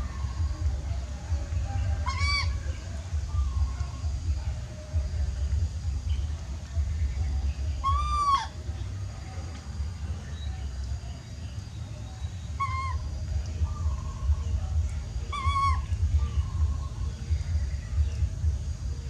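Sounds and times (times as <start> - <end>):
steady low rumble: 0.0 - 19.0
baby monkey crying: 2.0 - 2.6, 7.8 - 8.5, 12.6 - 13.1, 15.3 - 15.9.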